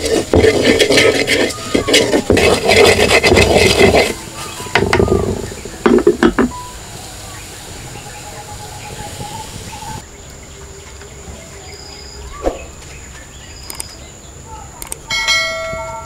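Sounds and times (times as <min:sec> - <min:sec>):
wooden spoon scraping clay pot: 0:00.0 - 0:06.5.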